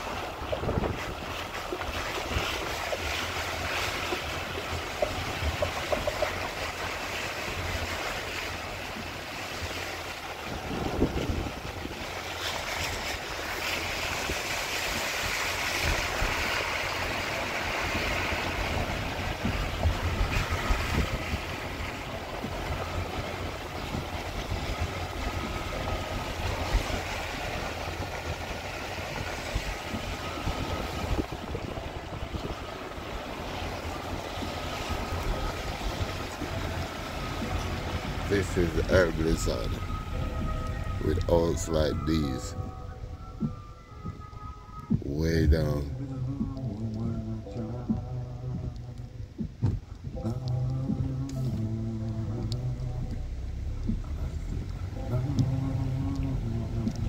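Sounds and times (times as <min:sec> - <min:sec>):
wind hiss: 0:00.0 - 0:42.8
car road noise rumble: 0:00.0 - 0:57.0.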